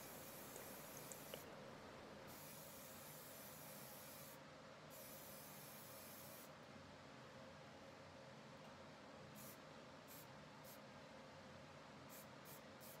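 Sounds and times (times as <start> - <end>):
spray paint can hissing: 0.0 - 1.4, 2.3 - 6.4, 12.1 - 13.0.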